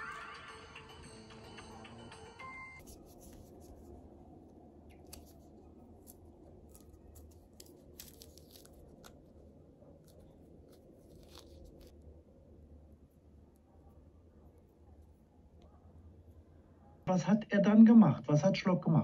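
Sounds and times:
low room hum: 0:01.1 - 0:19.0
orange peel tearing: 0:04.8 - 0:12.0.

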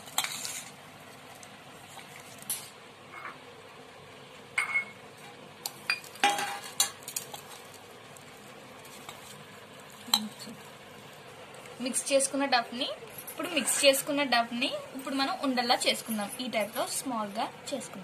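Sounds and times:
hand mixing dough in a bowl: 0:00.0 - 0:02.5, 0:07.1 - 0:18.0
metal bowl clinking: 0:04.6 - 0:05.0, 0:05.9 - 0:07.4, 0:10.0 - 0:10.4.

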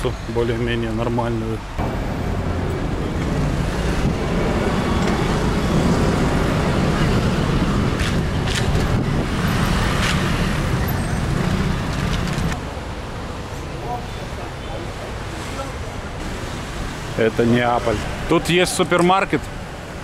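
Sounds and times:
cars passing: 0:00.0 - 0:20.0
motor scooters passing: 0:01.8 - 0:12.6.

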